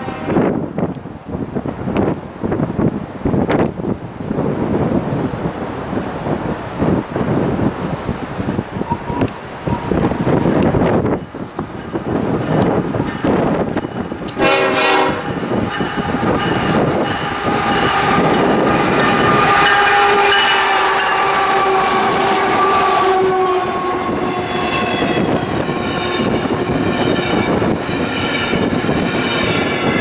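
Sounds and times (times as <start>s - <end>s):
locomotive air horn blasts: 0.0s - 0.6s, 14.2s - 15.4s, 16.7s - 26.7s
train cars rumbling on rails: 0.0s - 30.0s.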